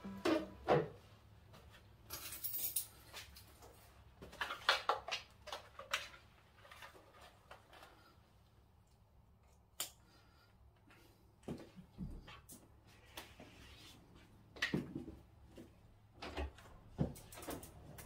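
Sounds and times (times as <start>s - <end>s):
straps and buckles clicking and rustling: 1.7s - 8.2s, 16.2s - 18.0s.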